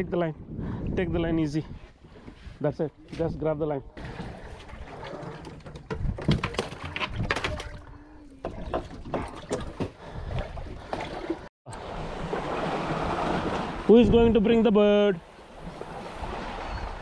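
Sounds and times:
knocks and thumps on boat: 0:04.0 - 0:07.8, 0:08.4 - 0:11.5.

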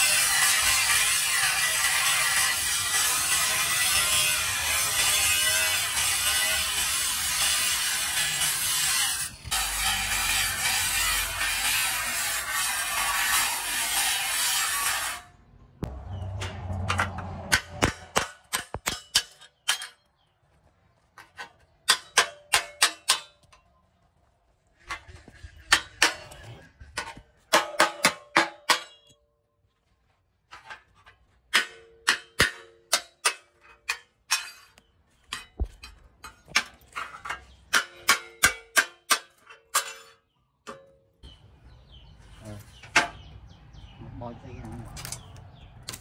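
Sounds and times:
angle grinder cutting steel: 0:00.0 - 0:15.3.

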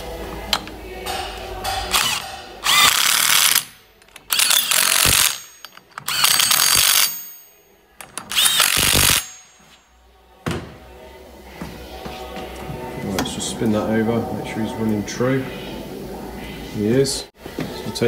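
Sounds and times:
impact wrench bursts: 0:01.9 - 0:07.4, 0:08.0 - 0:09.6.

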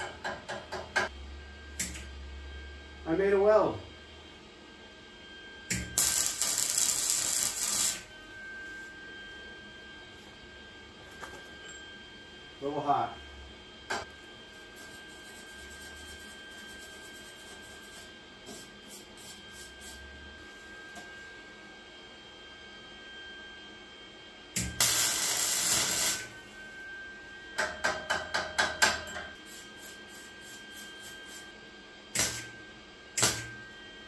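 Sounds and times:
welding arc crackling: 0:05.7 - 0:08.1, 0:24.6 - 0:26.4, 0:32.2 - 0:32.5, 0:33.2 - 0:33.4.

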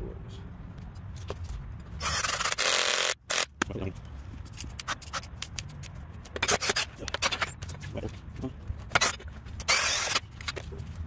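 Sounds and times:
cordless drill driving screw: 0:02.0 - 0:03.5, 0:09.0 - 0:10.5
handling rustles and clicks: 0:03.6 - 0:11.0.

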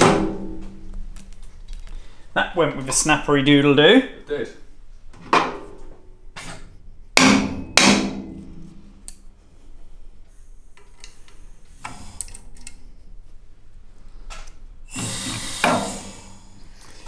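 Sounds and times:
mallet knocking on metal: 0:07.2 - 0:08.6.

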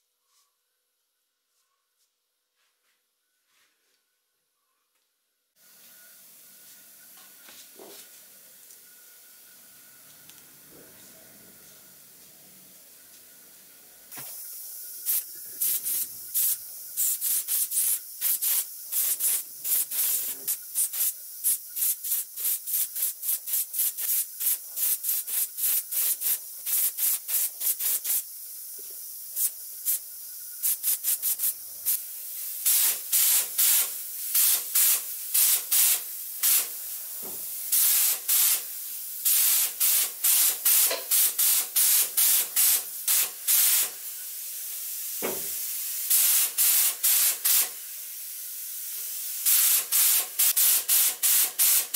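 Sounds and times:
faint steady air hiss: 0:00.0 - 0:51.9
paint spray gun hissing bursts: 0:14.1 - 0:51.9.

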